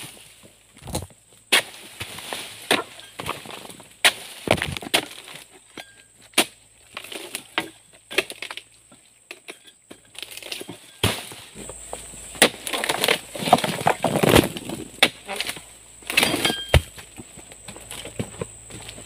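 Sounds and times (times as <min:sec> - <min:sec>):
chisel chopping wood: 0:12.4 - 0:15.3.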